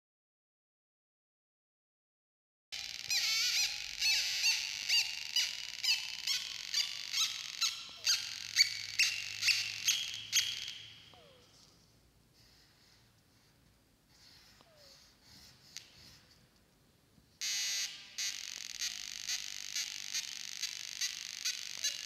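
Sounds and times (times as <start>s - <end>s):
squeaky electronic chirps: 2.8s - 11.5s, 17.4s - 22.0s.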